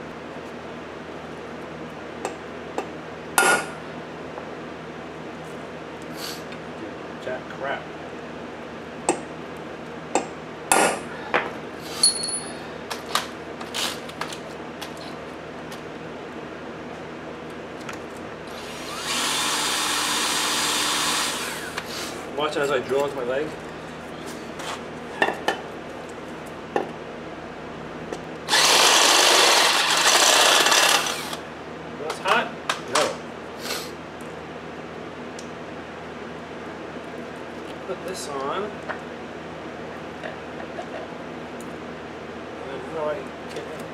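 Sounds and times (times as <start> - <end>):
cordless drill running: 18.5 - 21.8, 28.5 - 31.4.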